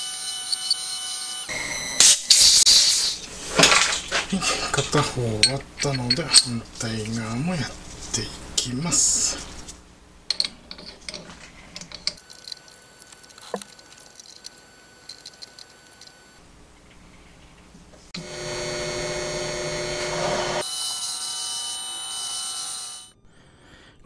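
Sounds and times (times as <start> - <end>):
lathe running with whine: 18.2 - 23.1.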